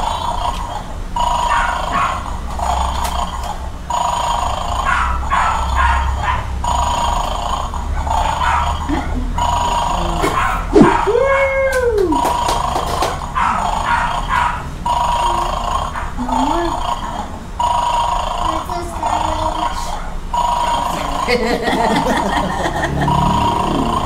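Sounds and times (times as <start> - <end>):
toy electronic sound effect: 0.0 - 21.4, 22.0 - 24.0
voice-like electronic call: 18.4 - 21.3.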